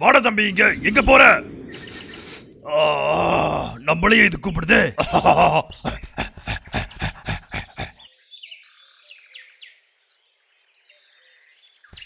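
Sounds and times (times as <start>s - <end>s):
faint bird chirps: 1.6s - 2.5s.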